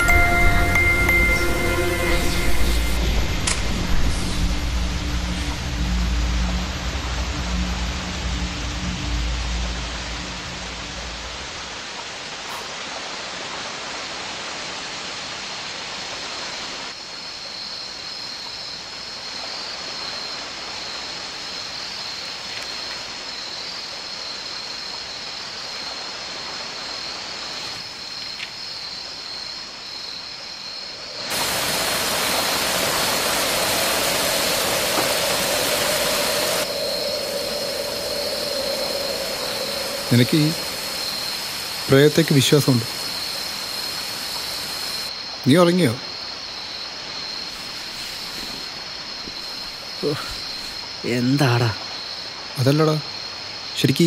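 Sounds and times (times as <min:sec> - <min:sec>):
thin high whine: 0:00.0 - 0:06.1, 0:33.4 - 0:42.3
steady rushing hiss: 0:00.0 - 0:54.0.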